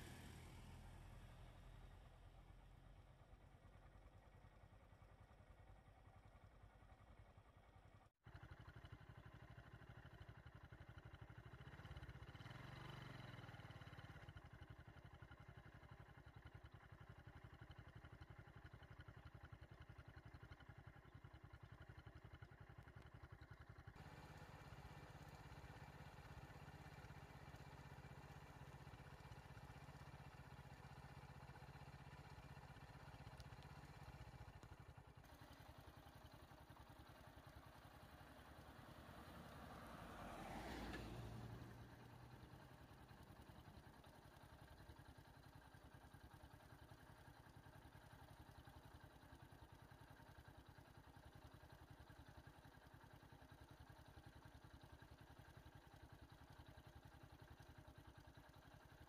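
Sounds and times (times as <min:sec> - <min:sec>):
vehicle passing by: 0:00.0 - 0:01.4, 0:38.7 - 0:42.1
vehicle engines and road noise: 0:00.0 - 0:03.4, 0:11.0 - 0:15.7, 0:23.8 - 0:46.4.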